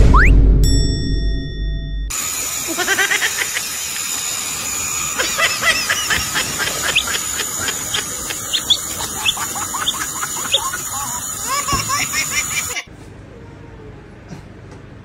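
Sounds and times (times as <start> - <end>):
chick peeping: 8.3 - 10.8.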